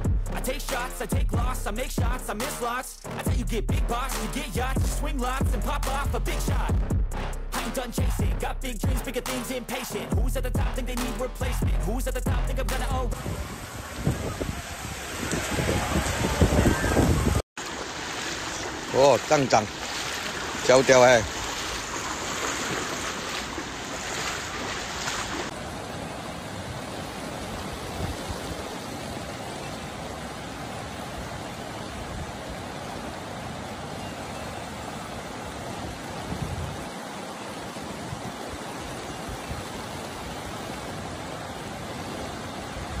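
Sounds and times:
river rushing: 0:13.1 - 0:43.0.

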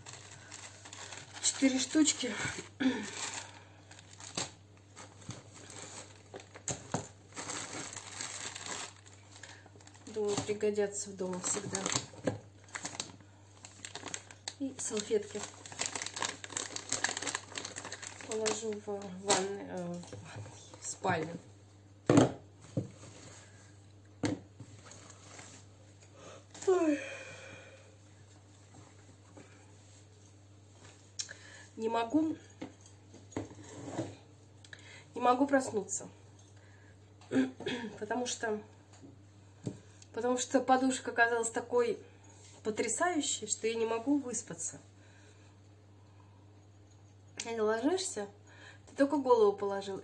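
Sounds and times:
plastic packaging crinkling: 0:00.0 - 0:19.6.

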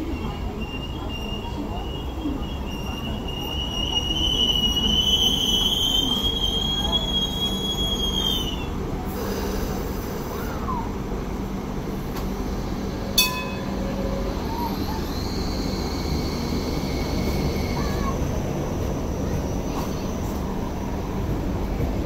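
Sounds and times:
train wheels squealing: 0:00.0 - 0:10.9, 0:12.4 - 0:21.0
sharp metallic clank: 0:13.2 - 0:13.8.

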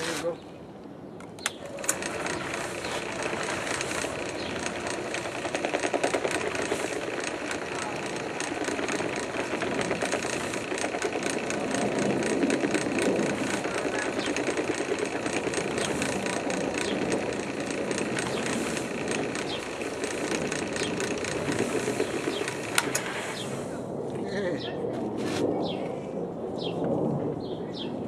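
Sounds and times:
drill press motor hum: 0:01.4 - 0:23.5.

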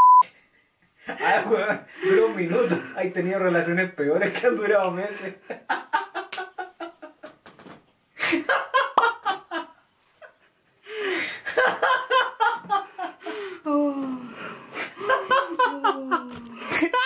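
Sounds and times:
woman laughing: 0:11.5 - 0:13.2, 0:15.0 - 0:17.0.

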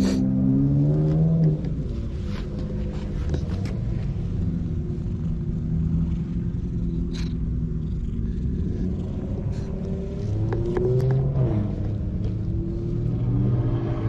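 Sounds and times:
cat purring: 0:03.4 - 0:12.4.

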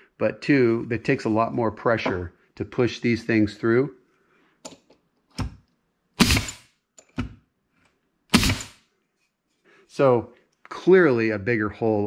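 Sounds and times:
nail gun firing: 0:06.2 - 0:07.4, 0:08.3 - 0:08.8.

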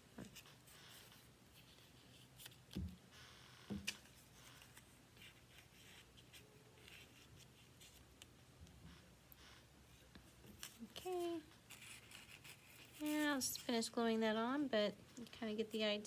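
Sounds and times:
paper rustling: 0:10.4 - 0:13.7.

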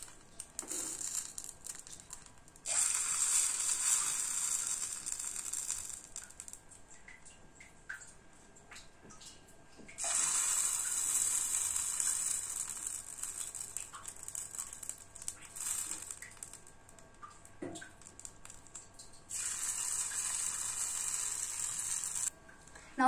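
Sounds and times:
batter sizzling on hot pan: 0:00.0 - 0:06.9, 0:10.0 - 0:22.3.

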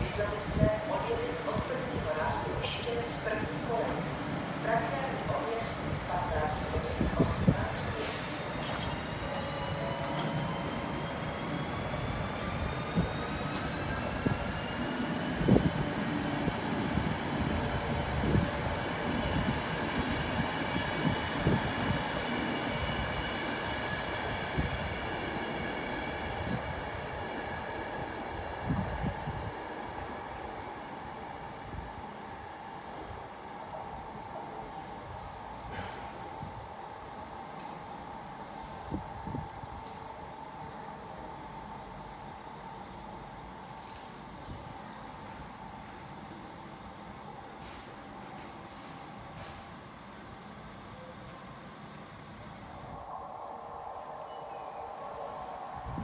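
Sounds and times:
thin high squeal: 0:40.1 - 0:48.1, 0:52.6 - 0:56.0.

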